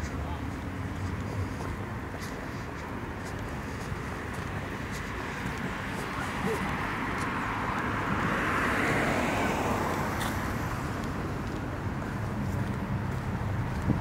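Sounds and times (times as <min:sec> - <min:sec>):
traffic low rumble: 0:00.0 - 0:14.0
vehicle passing: 0:03.4 - 0:14.0.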